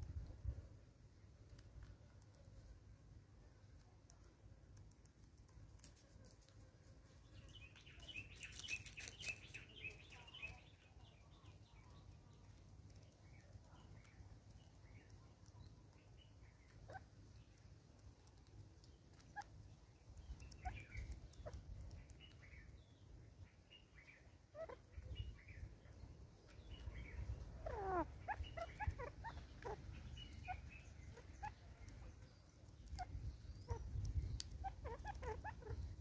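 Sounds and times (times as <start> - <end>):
birds chirping: 7.2 - 36.0.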